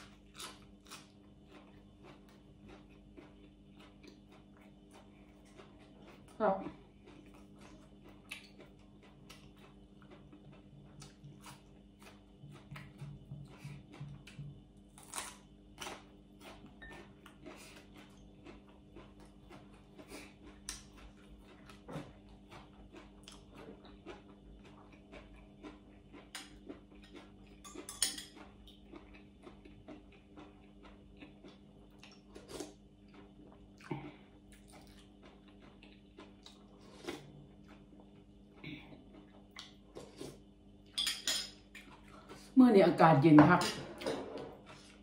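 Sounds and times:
chewing and mouth noises: 0.0 - 40.5
steady low hum: 0.0 - 45.0
metal spoon clinking against bowl: 41.0 - 41.6.

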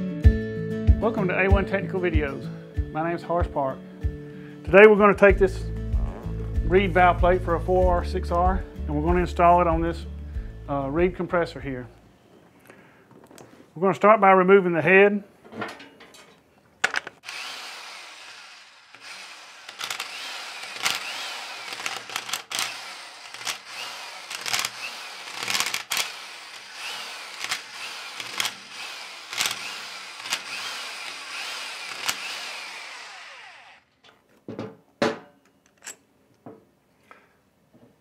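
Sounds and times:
power tool motor whining: 17.2 - 34.0.

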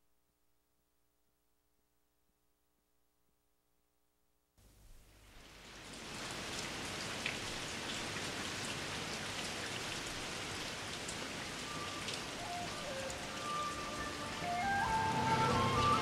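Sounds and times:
steady rain falling: 4.6 - 16.0.

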